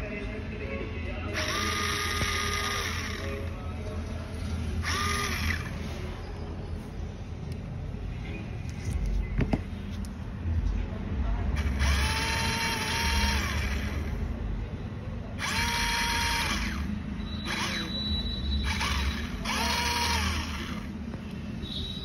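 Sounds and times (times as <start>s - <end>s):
small electric motor whining: 1.4s - 3.5s, 4.8s - 5.8s, 11.6s - 14.1s, 15.4s - 18.0s, 18.6s - 20.9s.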